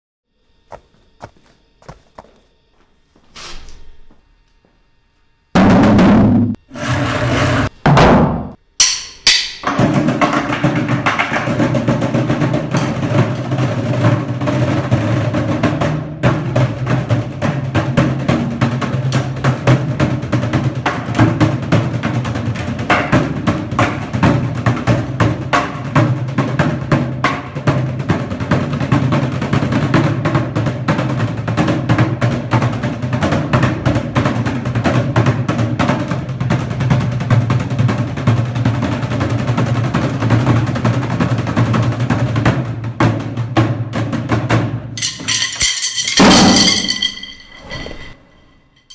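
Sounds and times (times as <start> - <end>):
drumming on plastic buckets: 9.7 - 47.0.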